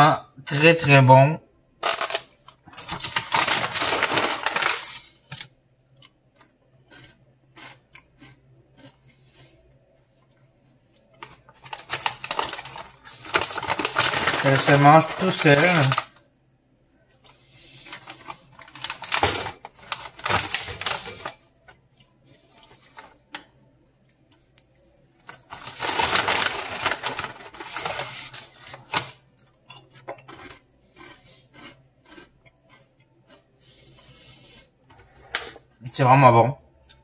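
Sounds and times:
plastic snack bag rustling: 1.8s - 5.5s, 11.1s - 16.2s, 17.3s - 21.4s, 25.2s - 29.2s
crunching and chewing crisps: 1.8s - 9.6s, 11.0s - 16.2s, 17.2s - 23.5s, 24.2s - 34.5s.

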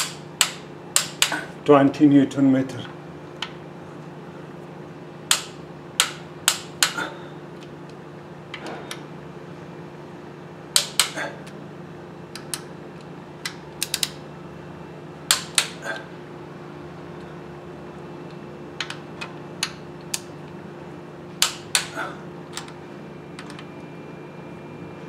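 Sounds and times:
steady low hum: 0.0s - 25.0s
socket wrench metallic clicks: 13.4s - 14.2s.

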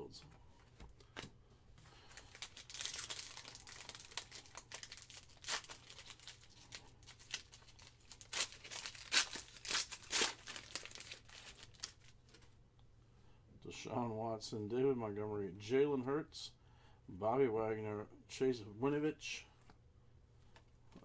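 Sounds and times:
foil wrapper crinkling and tearing: 2.0s - 12.4s.

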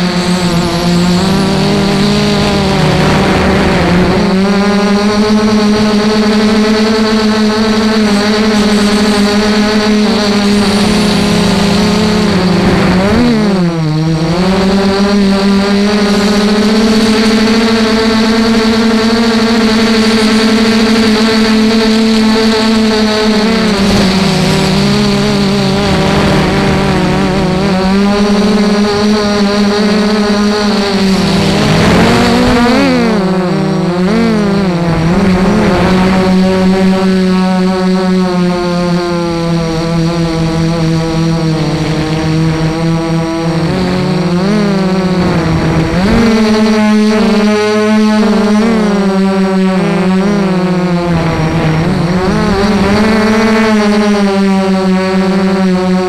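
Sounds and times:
quadcopter motors whining: 0.0s - 56.0s.

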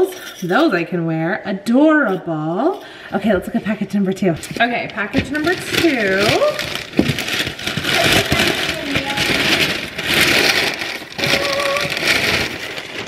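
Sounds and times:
paper tearing and crumpling: 4.5s - 13.0s.

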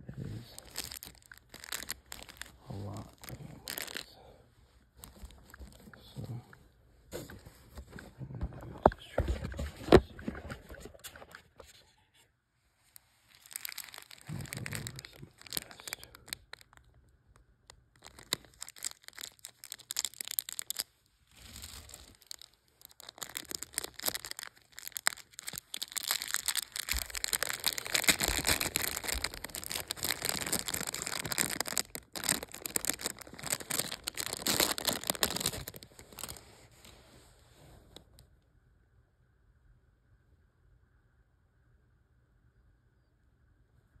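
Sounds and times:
plastic bag crinkling: 0.3s - 4.1s, 5.0s - 5.9s, 13.2s - 16.9s, 17.7s - 36.6s.

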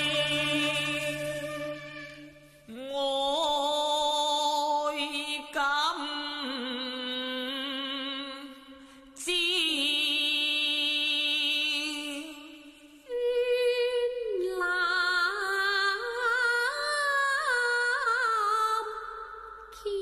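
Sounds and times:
opera singing with vibrato: 0.0s - 8.4s.

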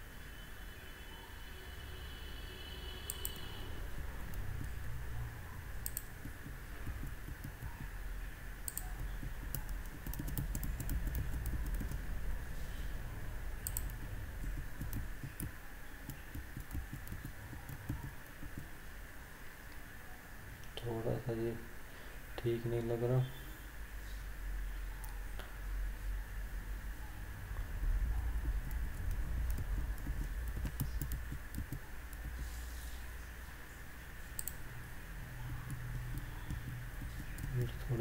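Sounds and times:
low background hum: 0.0s - 38.0s
keyboard keys clicking: 5.8s - 8.0s, 8.6s - 12.1s, 13.6s - 18.7s, 28.3s - 32.4s, 34.4s - 34.6s, 35.4s - 38.0s.

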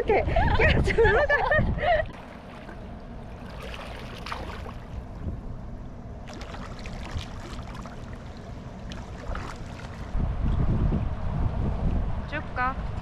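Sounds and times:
low steady rumble: 0.0s - 13.0s
pool water splashing: 2.1s - 5.2s, 6.2s - 10.2s.

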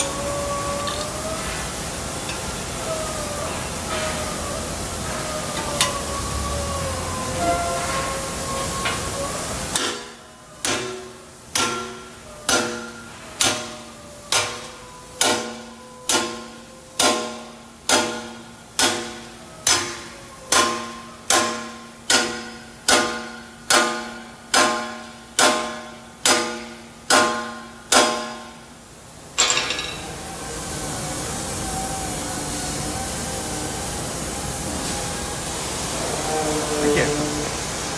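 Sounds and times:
hammer striking steel: 9.7s - 28.6s, 29.4s - 30.1s.

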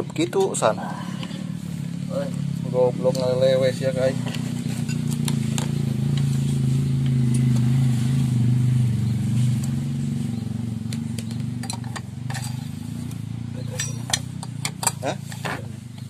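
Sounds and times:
small engine idling: 0.0s - 16.0s
hand tool clicking on metal: 13.7s - 15.4s.

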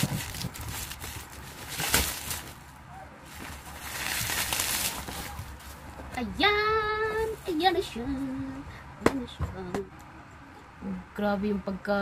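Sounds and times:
bubble-wrap mailer crinkling: 0.0s - 2.7s, 3.3s - 5.9s.

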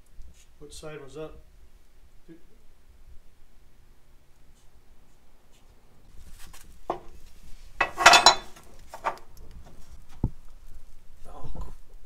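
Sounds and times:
metal clinking and scraping: 7.8s - 9.2s.

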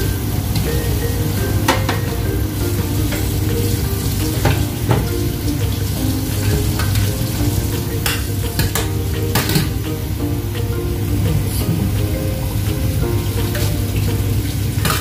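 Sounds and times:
garlic and onion sizzling in oil: 0.0s - 15.0s.

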